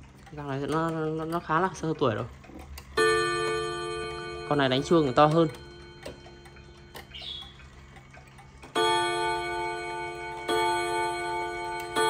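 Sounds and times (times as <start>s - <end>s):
clock clicking: 0.0s - 12.0s
clock gong striking: 3.0s - 7.6s, 8.6s - 12.0s.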